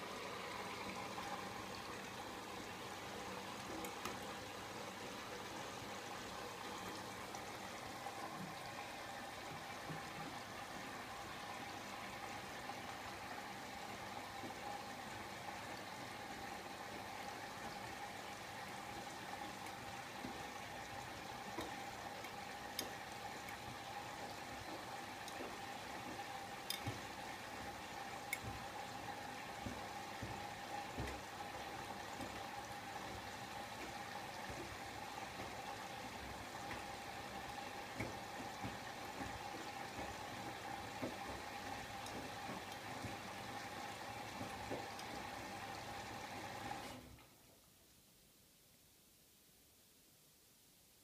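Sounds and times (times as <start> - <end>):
water running into drum: 0.0 - 47.0
water sloshing in washing machine: 0.0 - 47.1.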